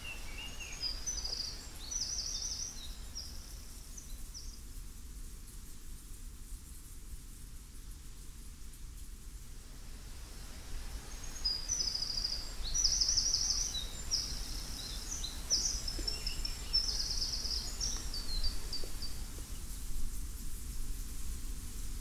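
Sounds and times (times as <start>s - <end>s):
songbird singing trilled phrases: 0.0s - 3.4s, 11.1s - 19.3s.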